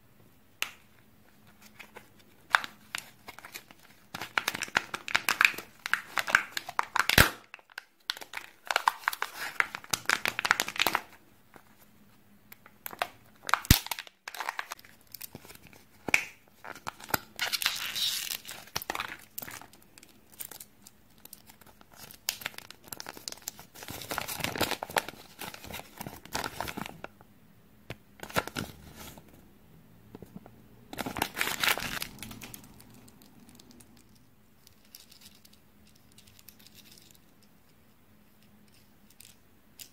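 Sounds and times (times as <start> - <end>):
crinkling and tearing of packaging: 1.6 - 11.2, 12.8 - 27.0, 30.9 - 34.0.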